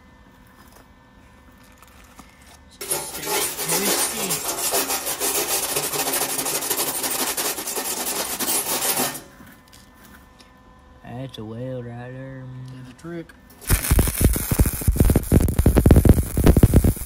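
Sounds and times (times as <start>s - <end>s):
wire brush scraping steel: 2.8s - 9.3s.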